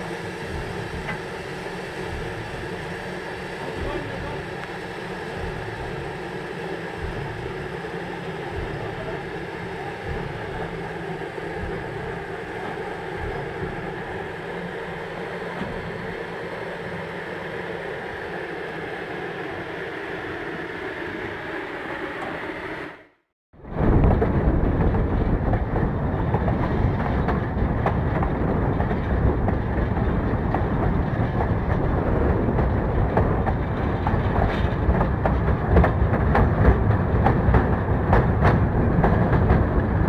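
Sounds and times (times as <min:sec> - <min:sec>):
low thumps: 0:23.6 - 0:40.0.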